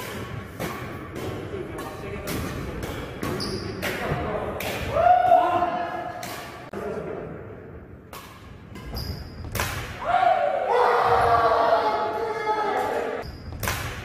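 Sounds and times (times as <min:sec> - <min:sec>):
rackets striking shuttlecock: 0:00.0 - 0:04.0, 0:08.1 - 0:10.0, 0:13.2 - 0:14.0.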